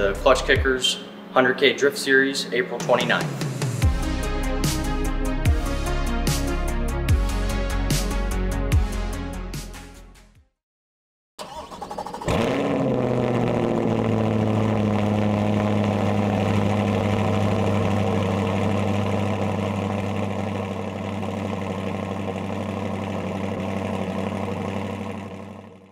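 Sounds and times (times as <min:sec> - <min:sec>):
engine starting and idling: 0:11.4 - 0:25.9.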